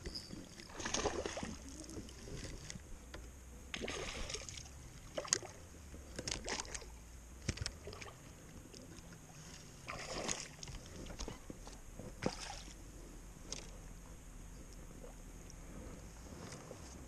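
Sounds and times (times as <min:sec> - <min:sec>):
fish splashing: 0:00.4 - 0:02.5, 0:03.7 - 0:05.6, 0:09.8 - 0:10.9.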